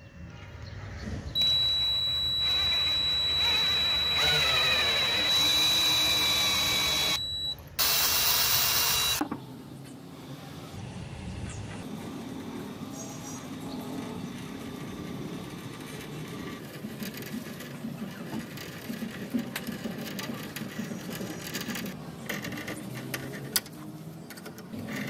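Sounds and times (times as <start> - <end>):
small power tool running: 1.4 - 9.2.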